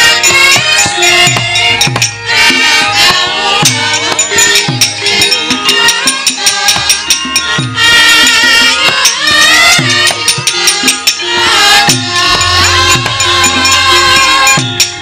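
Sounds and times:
metallophones ringing: 0:00.0 - 0:15.0
low drum strokes: 0:11.9 - 0:15.0.

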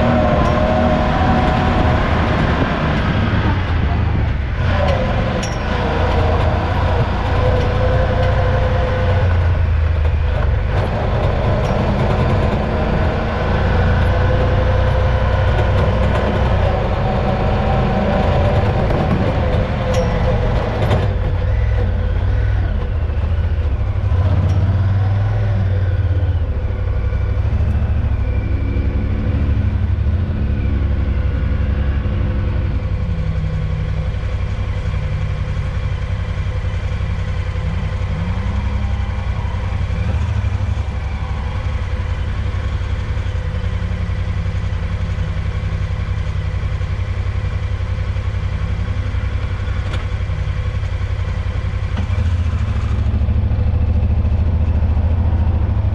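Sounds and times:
vehicle engine running: 0:00.0 - 0:55.9.

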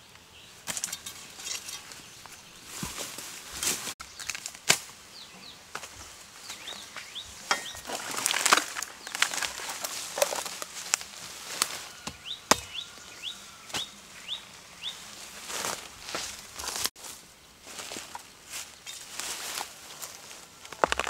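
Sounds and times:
small birds chirping: 0:00.0 - 0:21.0
footsteps in dry leaves: 0:01.2 - 0:21.0.

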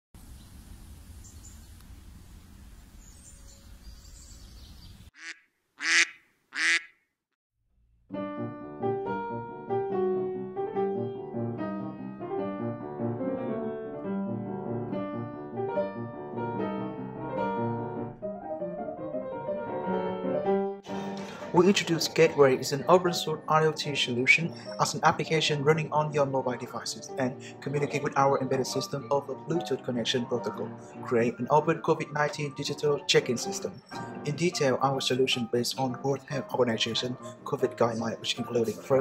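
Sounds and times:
solo piano music: 0:08.1 - 0:36.0.

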